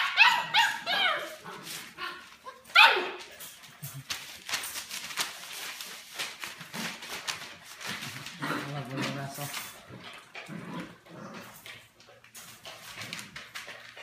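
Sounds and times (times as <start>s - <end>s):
puppies yipping and yelping: 0.0s - 3.3s
claws scrabbling on wooden floor: 3.2s - 10.8s.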